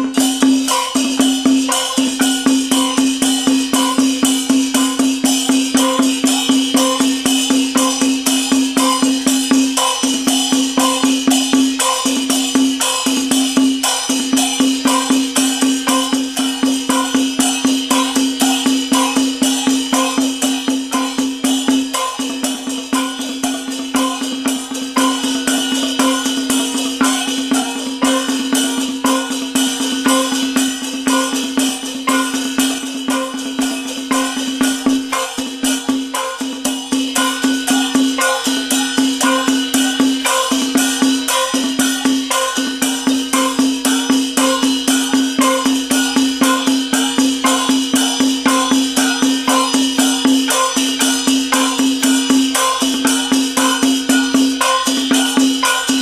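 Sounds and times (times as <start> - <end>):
drum gong and cymbal percussion: 0.0 - 56.0
steady held tone: 13.6 - 56.0.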